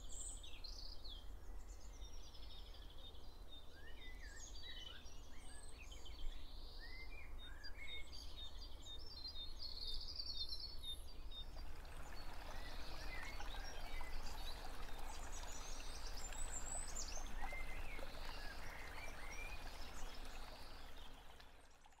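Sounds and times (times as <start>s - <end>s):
birds chirping: 10.8s - 21.7s.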